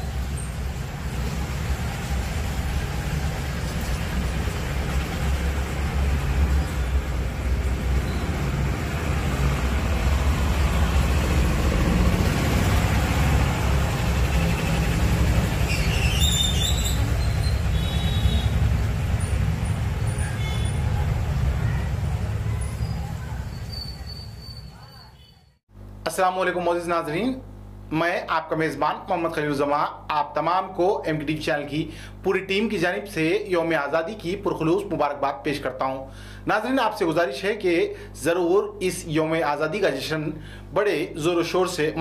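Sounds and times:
low rumble of road traffic: 0:00.0 - 0:25.9.

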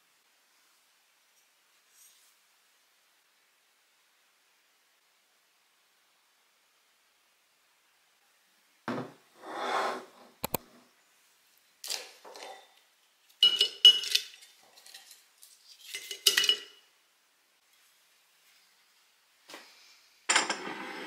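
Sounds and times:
glass jar and lid clinking: 0:12.3 - 0:12.7, 0:13.4 - 0:15.2, 0:15.8 - 0:16.8.

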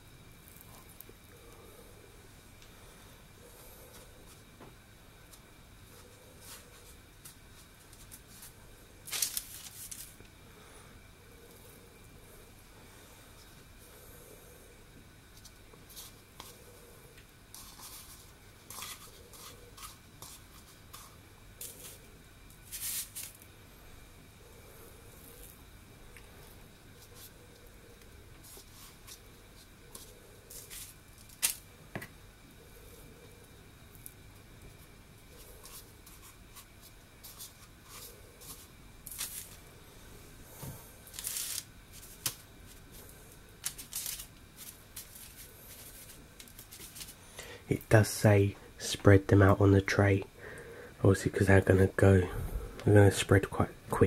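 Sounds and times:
dough rustling in sugar: 0:05.2 - 0:10.8, 0:15.2 - 0:16.8, 0:17.4 - 0:32.1, 0:33.5 - 0:48.5.

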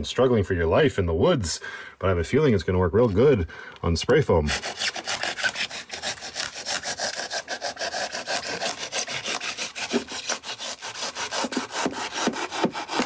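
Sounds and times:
saw blade sawing foam: 0:04.4 - 0:13.0.

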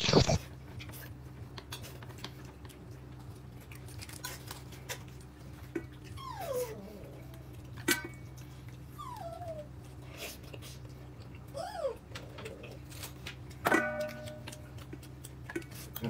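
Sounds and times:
pet whining: 0:05.6 - 0:07.7, 0:08.6 - 0:10.4, 0:11.2 - 0:13.2.

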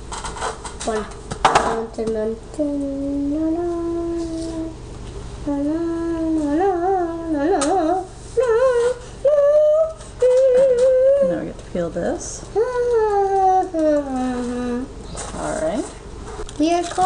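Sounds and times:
person singing wordless tune: 0:02.6 - 0:04.8, 0:05.4 - 0:11.3.

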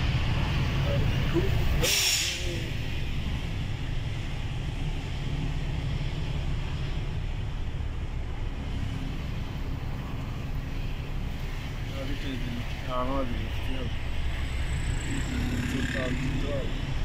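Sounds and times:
truck engine and road noise: 0:00.0 - 0:17.0
brief hiss: 0:01.8 - 0:02.5.

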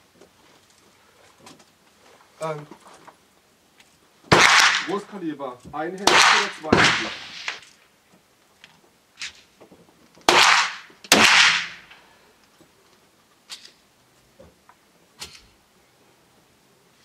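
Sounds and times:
faint gunshots: 0:04.3 - 0:05.1, 0:06.0 - 0:07.7, 0:10.3 - 0:12.0
loud handgun shots: 0:04.3 - 0:05.1, 0:06.0 - 0:07.6, 0:10.3 - 0:11.9.

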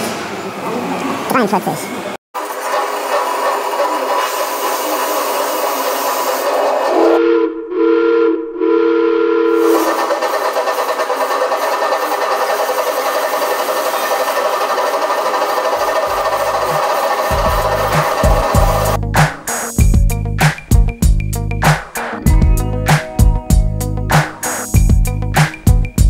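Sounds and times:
steam hissing: 0:02.4 - 0:07.2, 0:09.6 - 0:19.8, 0:24.2 - 0:24.9
steam whistle blasts: 0:06.9 - 0:10.1.

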